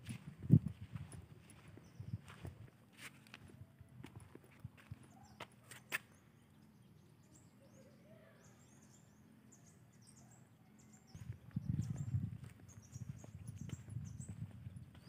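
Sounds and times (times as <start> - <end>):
faint high bird chirps: 5.1 - 15.0.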